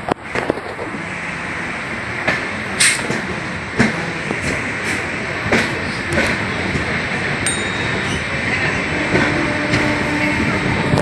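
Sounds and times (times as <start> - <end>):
train rumble and air rush: 0.0 - 11.0
train wheels knocking: 2.2 - 11.0.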